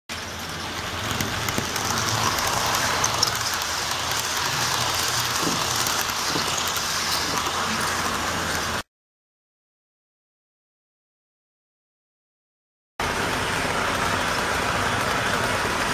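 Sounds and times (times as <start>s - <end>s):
model train rattling on track: 0.1s - 8.8s, 13.0s - 15.9s.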